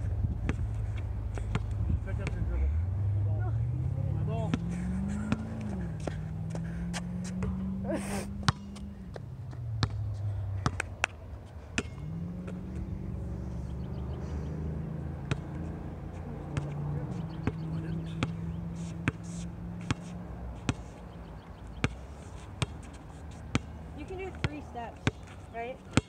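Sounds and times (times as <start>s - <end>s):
basketball bouncing on court: 1.3s - 2.4s, 7.4s - 7.6s, 8.4s - 11.2s, 11.8s - 12.6s, 15.2s - 15.6s, 16.5s - 18.4s, 19.8s - 20.9s, 22.6s - 22.9s, 23.5s - 25.3s.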